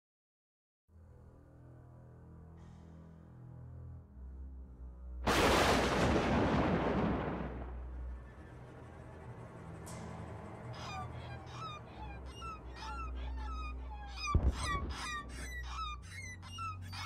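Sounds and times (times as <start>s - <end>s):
flock of birds calling: 10.6s - 17.0s.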